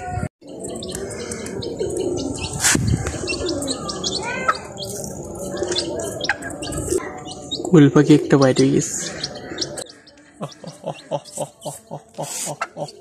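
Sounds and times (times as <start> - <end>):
birds chirping: 0.0 - 13.0
low wavering bird calls: 0.0 - 13.0.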